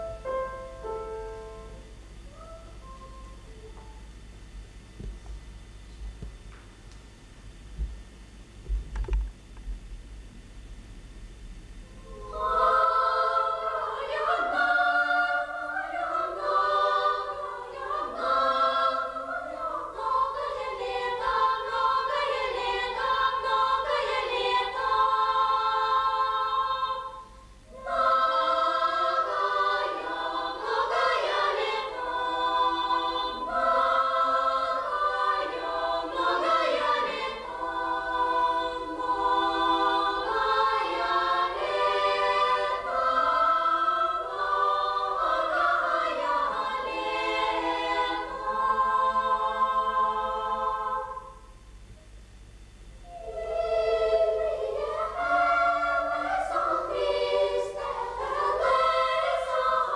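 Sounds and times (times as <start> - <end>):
children's choir singing: 12.0 - 51.5, 53.0 - 59.9.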